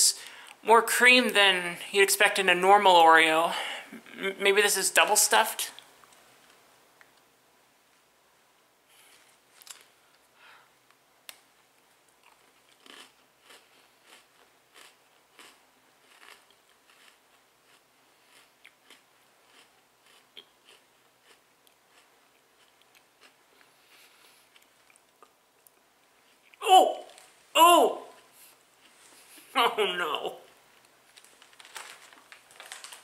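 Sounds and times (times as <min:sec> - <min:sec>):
cookie crunching and chewing: 0:09.1 - 0:10.0, 0:12.0 - 0:27.3, 0:30.8 - 0:33.0.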